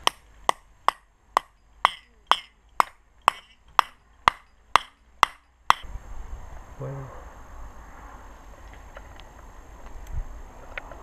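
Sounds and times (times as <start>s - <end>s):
hammer striking metal piton: 0.0s - 5.9s.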